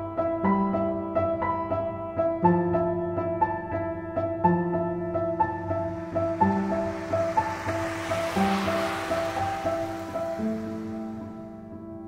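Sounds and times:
soft hiss: 5.2 - 11.6.

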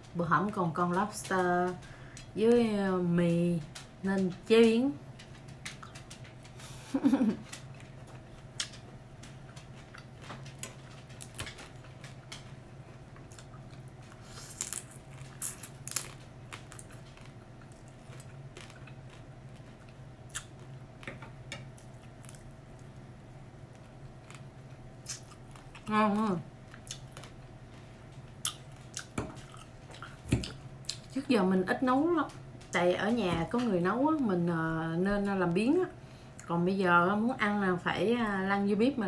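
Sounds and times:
chewing noodles: 7.5 - 20.8, 26.7 - 31.1.

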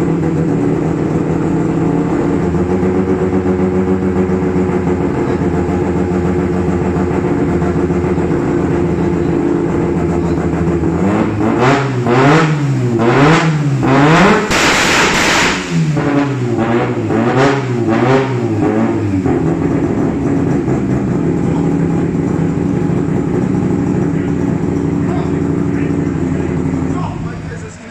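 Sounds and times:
car engine idling and revving: 0.0 - 27.9
harsh turbo rushing burst: 14.0 - 17.0.

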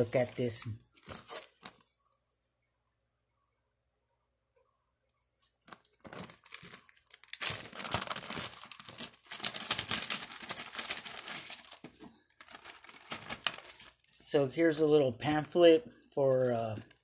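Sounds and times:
plastic bag crinkling: 5.6 - 14.4, 16.2 - 17.0.

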